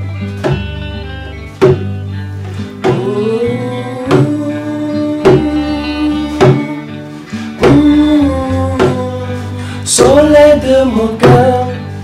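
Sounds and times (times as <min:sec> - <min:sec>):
hand drum strokes: 0:00.0 - 0:12.0
held notes and bass line: 0:00.0 - 0:12.0.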